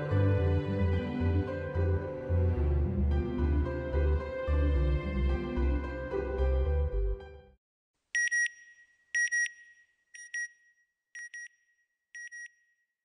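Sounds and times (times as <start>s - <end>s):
background music: 0.0s - 7.6s.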